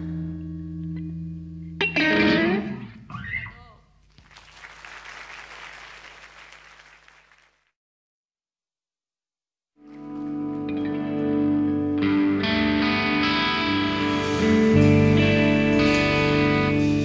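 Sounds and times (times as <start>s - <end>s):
audience applauding: 4.1s - 7.7s
electric guitar chord: 10.2s - 17.0s.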